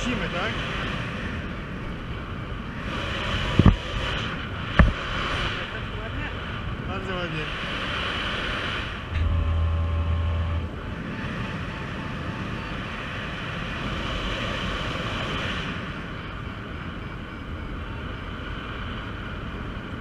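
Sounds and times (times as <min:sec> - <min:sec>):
wind rushing over microphone: 0:00.0 - 0:20.0
low buffeting gust: 0:01.2 - 0:11.6
faint short beeps: 0:09.2 - 0:10.7.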